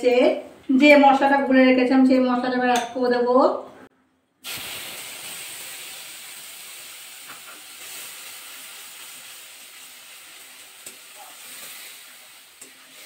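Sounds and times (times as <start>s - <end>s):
spice paste sizzling in oil: 4.4s - 13.0s.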